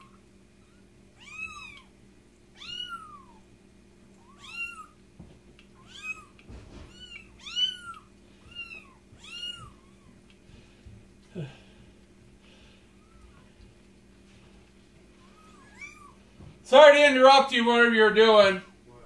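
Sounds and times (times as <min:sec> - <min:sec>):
kitten meowing: 0:00.0 - 0:01.9, 0:02.5 - 0:03.4, 0:04.2 - 0:05.0, 0:05.8 - 0:10.2, 0:15.2 - 0:16.2.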